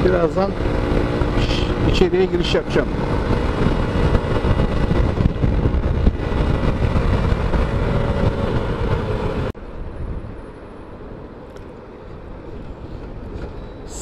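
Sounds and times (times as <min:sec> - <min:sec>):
motorcycle engine running: 0:00.0 - 0:09.5
heavy wind noise: 0:00.0 - 0:14.0.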